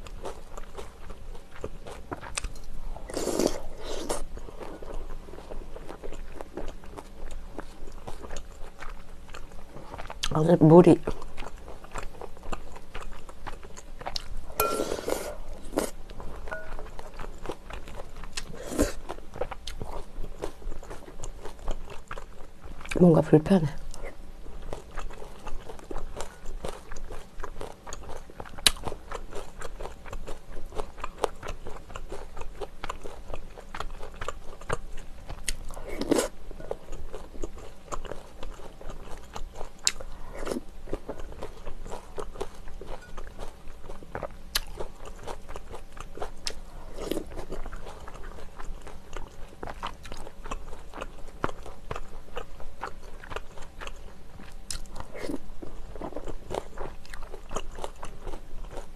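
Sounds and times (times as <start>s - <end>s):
person chewing: 0.0s - 10.3s, 11.0s - 23.0s, 23.9s - 58.9s
spoon clinking on glass bowl: 14.6s - 15.2s, 16.5s - 16.8s.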